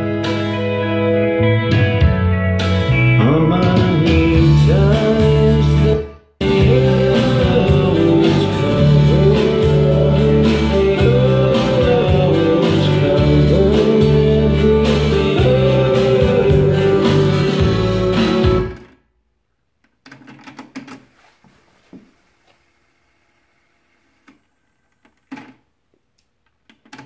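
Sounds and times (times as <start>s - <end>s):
guitar music through speakers: 0.0s - 18.9s.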